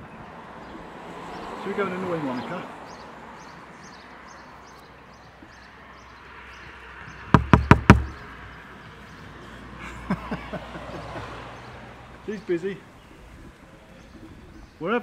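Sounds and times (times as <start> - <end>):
knuckles knocking on a window: 7.3 - 8.2.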